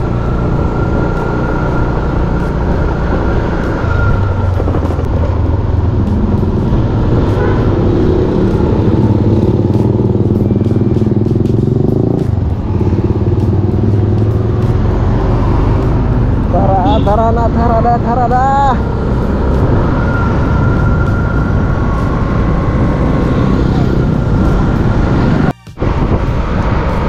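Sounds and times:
motorcycle engine running: 0.0 - 19.7.

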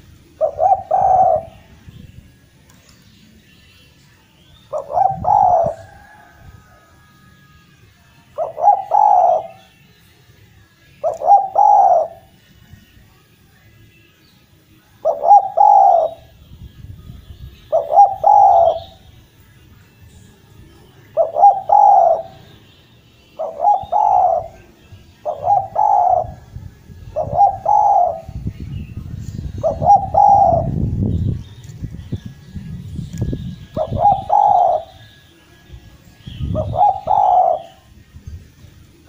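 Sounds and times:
dove cooing: 0.0 - 1.7, 4.7 - 6.9, 8.3 - 9.7, 11.0 - 12.3, 15.0 - 16.3, 17.6 - 19.0, 21.0 - 22.5, 23.4 - 26.5, 27.1 - 28.4, 29.4 - 30.8, 33.6 - 35.1, 36.3 - 37.9.

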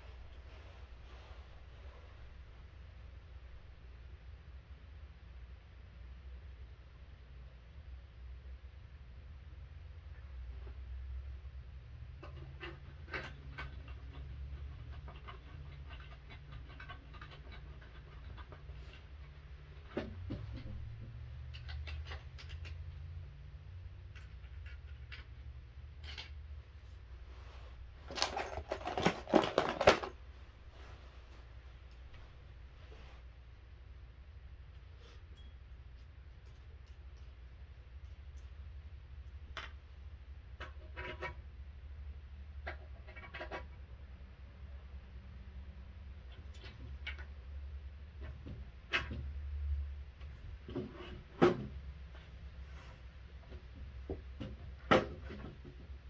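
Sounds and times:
low steady hum: 0.0 - 56.0
clicks and knocks of crib parts: 12.1 - 23.2, 28.1 - 30.2, 42.5 - 43.9, 46.2 - 52.4, 53.4 - 56.0
small metal parts clicking: 26.0 - 26.4.

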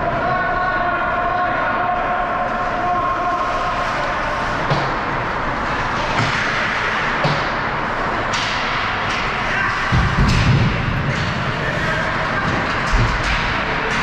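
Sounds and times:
arena noise: 0.0 - 14.0
hockey sticks and puck clacking: 4.5 - 14.0.

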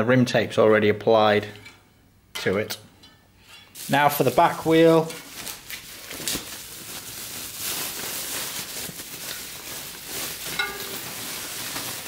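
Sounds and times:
plastic bag rustling and crinkling: 3.7 - 12.0.

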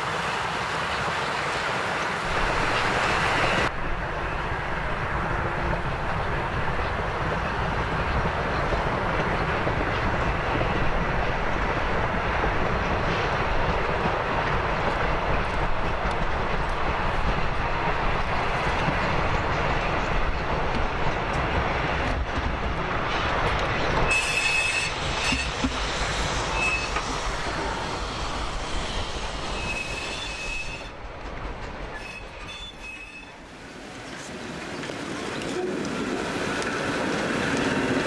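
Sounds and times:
train rumbling past: 0.0 - 38.0
steam hiss: 24.1 - 30.9.

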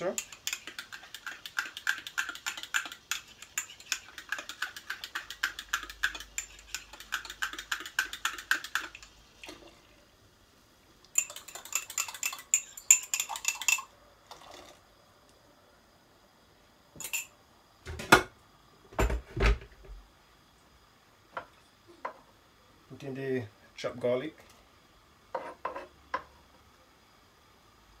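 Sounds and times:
spoon clinking in a mug: 0.0 - 9.1, 11.2 - 13.9, 17.0 - 17.3.

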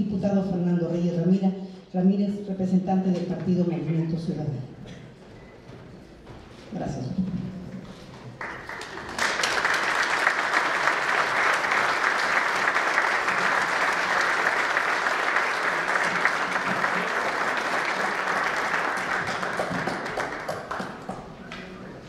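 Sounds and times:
crowd applauding: 8.4 - 22.0.

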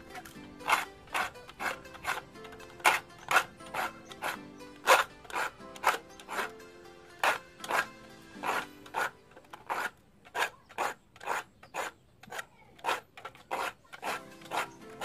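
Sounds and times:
file rasping on saw teeth: 0.1 - 15.0.

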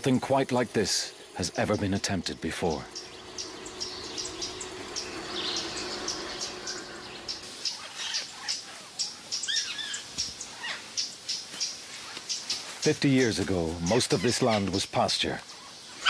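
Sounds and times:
birds chirping: 0.0 - 16.0
bird call notes rising and falling: 1.3 - 10.1.

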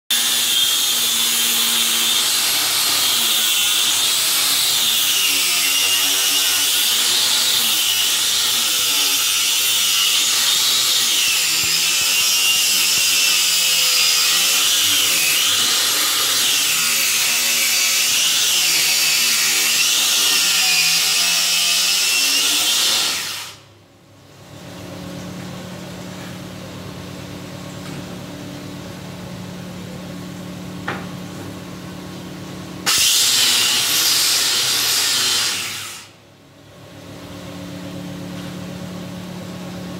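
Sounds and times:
electric planer cutting wood: 0.1 - 23.6, 32.9 - 36.1.

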